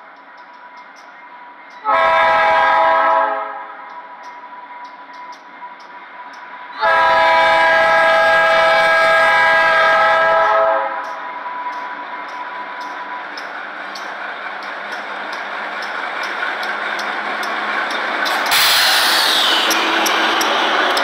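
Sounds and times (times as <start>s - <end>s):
locomotive air horn blasts: 1.8s - 3.7s, 6.8s - 11.2s.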